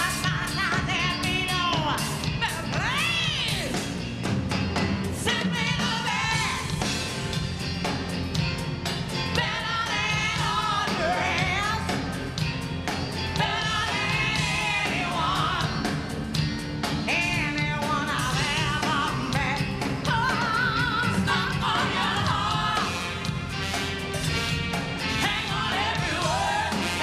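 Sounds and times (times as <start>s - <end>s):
woman singing with vibrato: 0.0s - 3.8s, 5.2s - 6.9s, 9.3s - 12.0s, 13.3s - 16.0s, 17.1s - 23.5s, 25.0s - 27.0s
drums: 0.0s - 27.0s
live rock band: 0.0s - 27.0s
backing singers: 13.3s - 16.0s, 20.1s - 23.4s, 25.1s - 27.0s.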